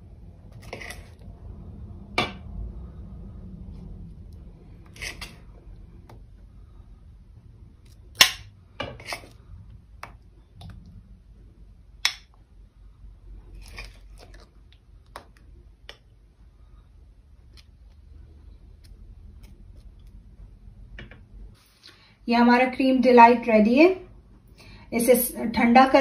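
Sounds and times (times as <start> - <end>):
spoon scraping bowl: 0.5 - 1.2, 4.8 - 5.5, 8.9 - 9.4.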